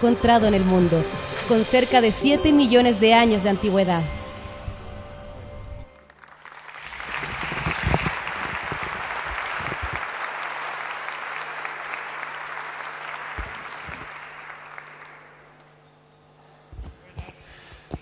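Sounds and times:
audience applauding: 6.0s - 15.6s.

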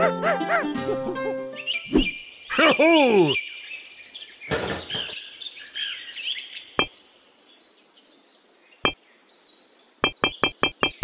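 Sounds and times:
birds chirping: 1.4s - 11.0s.

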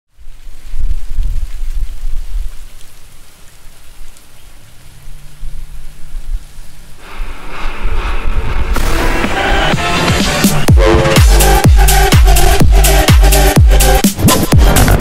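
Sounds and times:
low rumbling noise: 5.0s - 15.0s
electronic rising swell: 7.0s - 15.0s.

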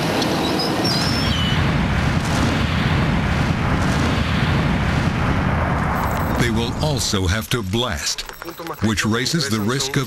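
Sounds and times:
blasting charges detonating: 1.1s - 7.1s.

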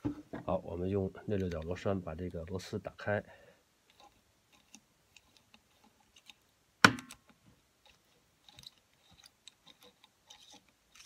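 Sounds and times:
metal clicks and scrapes: 7.2s - 11.0s.

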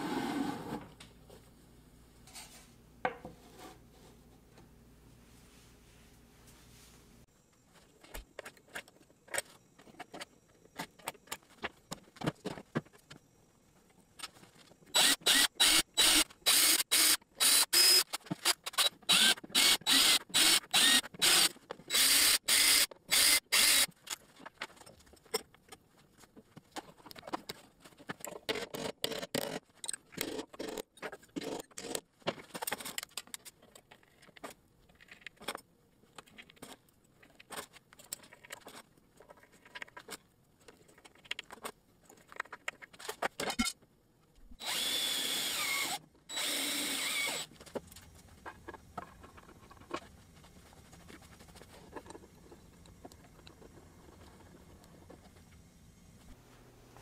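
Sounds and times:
cordless drill boring into wood: 14.9s - 23.9s, 44.6s - 47.5s
screws turned by hand: 14.9s - 24.0s, 44.6s - 47.5s.

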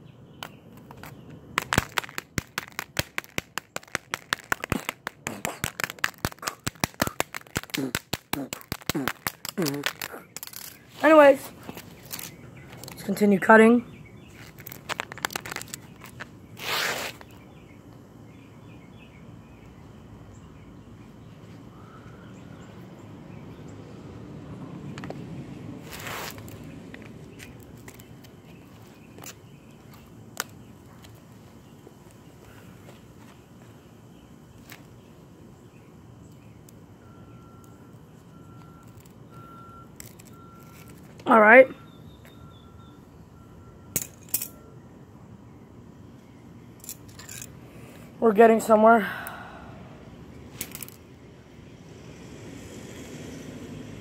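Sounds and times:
faint outdoor background: 0.0s - 54.0s
vehicle reversing beeper: 37.0s - 41.1s, 41.7s - 45.0s.

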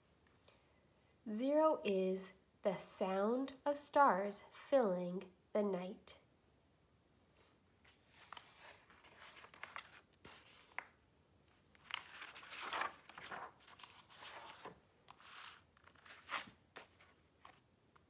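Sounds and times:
book pages turning: 7.8s - 18.0s.

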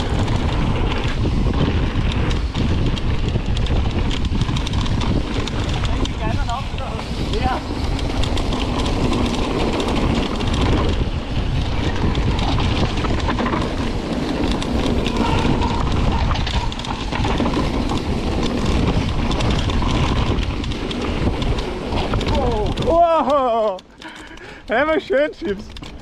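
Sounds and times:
bike tyres rumbling on gravel: 0.0s - 23.7s
wind on microphone: 0.0s - 24.7s
bike rattling and clicking: 0.0s - 26.0s.

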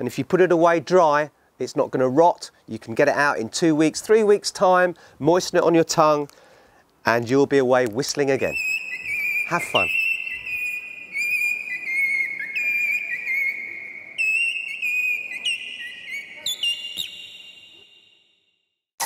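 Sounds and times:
bird-call whistle warbling: 8.4s - 18.6s.

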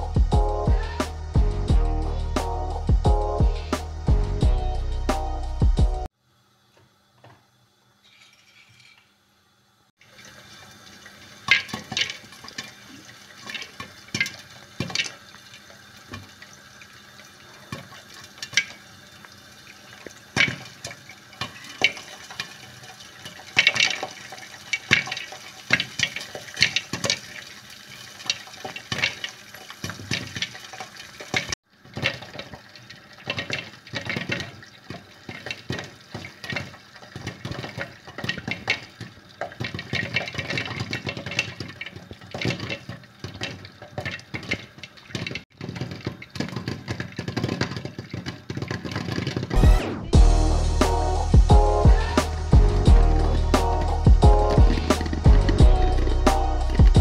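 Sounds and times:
oil sizzling: 0.0s - 57.0s
popcorn popping: 11.4s - 16.4s, 20.0s - 49.8s, 53.6s - 55.6s.

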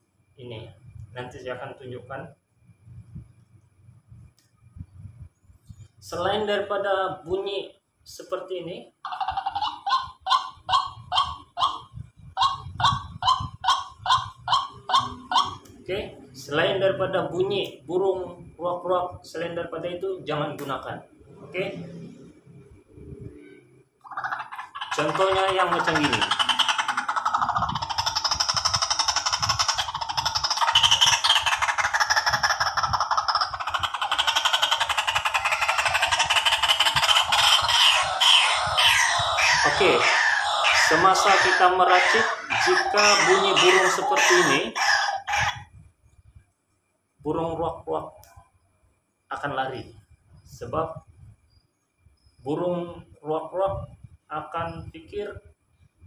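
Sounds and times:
recorded waterhen calls from phone speaker: 9.1s - 15.6s, 24.1s - 45.6s.

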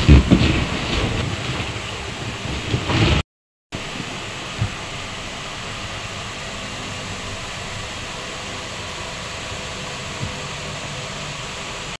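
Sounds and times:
steady hiss: 3.8s - 12.0s.

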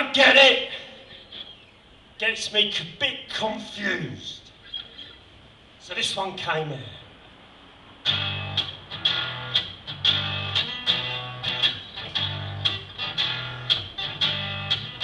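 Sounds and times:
acoustic guitar blues strumming: 8.0s - 15.0s.

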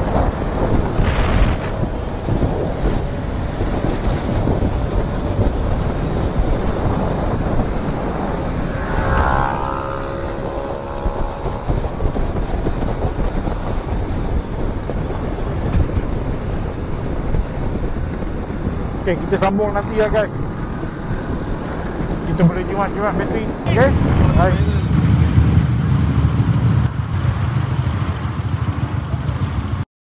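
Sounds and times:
wind buffeting microphone: 0.0s - 29.8s
vehicle engine and road noise: 0.0s - 29.9s
pitched whine: 6.4s - 12.7s.

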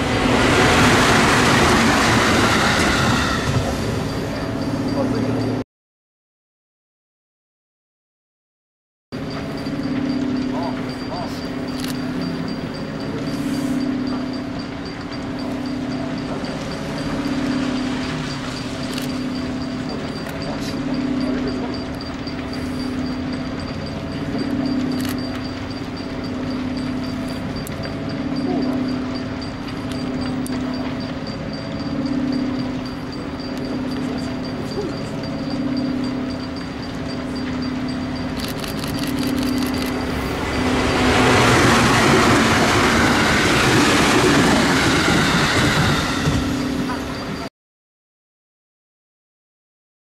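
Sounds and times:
train hum: 0.0s - 5.6s, 9.2s - 47.5s
high regular ticking: 9.2s - 47.5s.

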